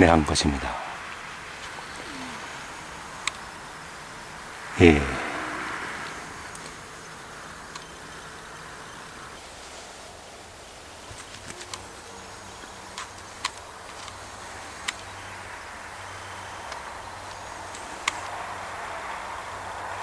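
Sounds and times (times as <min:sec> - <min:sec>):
rushing noise: 0:00.0 - 0:08.4
faint low hum: 0:00.0 - 0:20.0
soft hiss: 0:00.0 - 0:20.0
sharp clicks: 0:03.2 - 0:03.4, 0:14.8 - 0:15.1.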